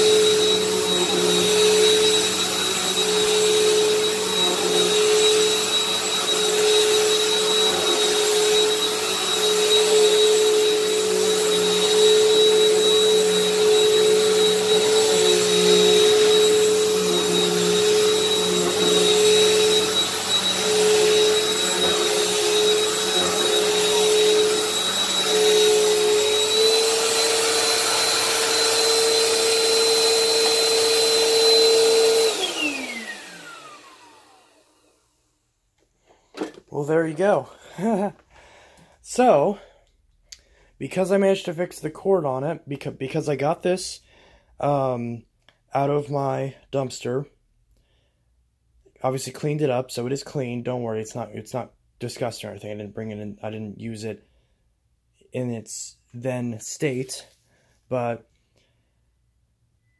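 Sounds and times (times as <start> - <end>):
vacuum cleaner running: 0.0 - 35.3, 36.1 - 38.5.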